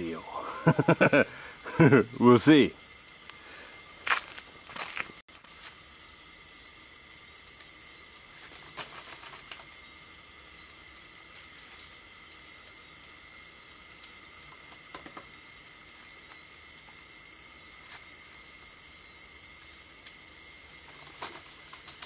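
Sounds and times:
night insects chirring: 0.0s - 22.0s
branches rustling: 7.5s - 10.0s.

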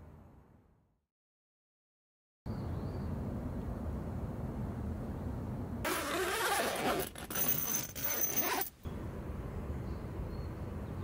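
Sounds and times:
tent zipper rasping: 5.8s - 8.7s.

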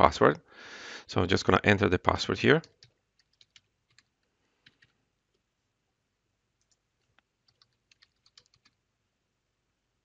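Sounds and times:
keyboard keystrokes: 2.6s - 4.9s, 7.4s - 8.8s.

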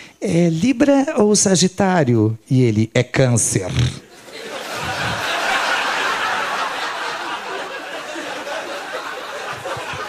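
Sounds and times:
audience laughing: 4.0s - 10.0s.

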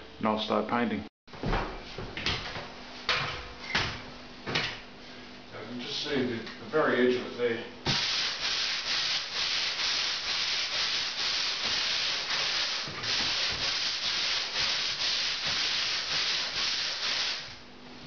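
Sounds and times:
sandpaper sanding strokes: 8.0s - 17.6s.

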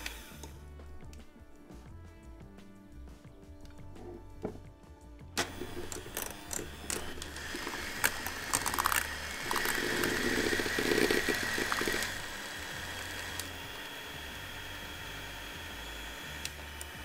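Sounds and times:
electric hand mixer running: 0.0s - 0.7s, 5.4s - 17.0s.

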